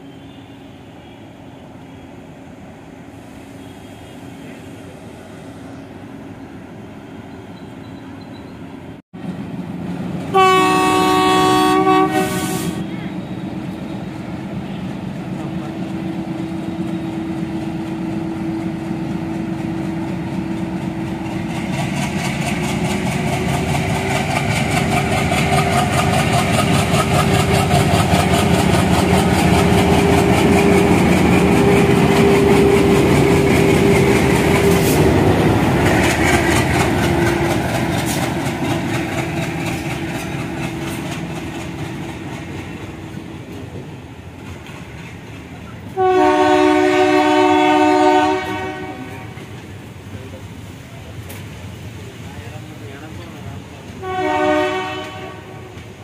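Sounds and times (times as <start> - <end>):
two-tone locomotive horn: 10.3 - 13.5, 45.9 - 49.5, 54.0 - 55.9
wheels clacking over rail joints: 16.9 - 46.2.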